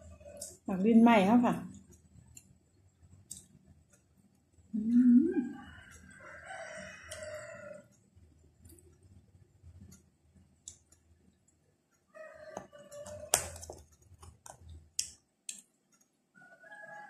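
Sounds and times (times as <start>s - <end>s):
faint eating clicks: 1.6s - 5.0s, 5.6s - 11.6s, 13.8s - 16.2s
rooster crowing: 5.4s - 7.9s, 12.1s - 13.6s, 16.4s - 17.0s.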